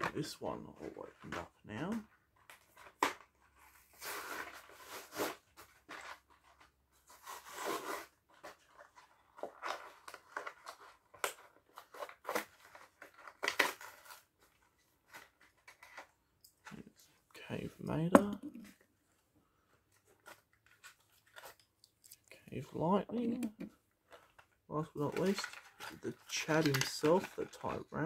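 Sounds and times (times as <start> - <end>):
card and plastic tearing: 9.4 - 16.1, 25.0 - 28.0.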